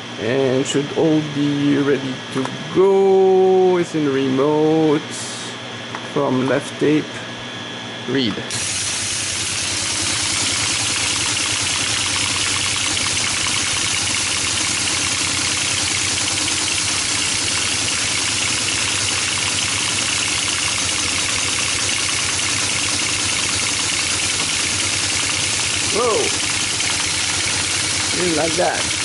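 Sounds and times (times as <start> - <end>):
motor running: 8.4 - 29.0
teleprinter mechanical clatter: 9.2 - 29.0.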